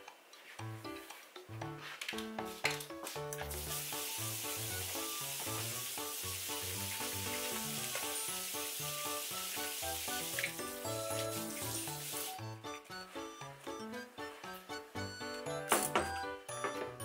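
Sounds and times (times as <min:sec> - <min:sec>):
background music: 0:00.0 - 0:17.0
tap water running into sink: 0:03.4 - 0:12.5.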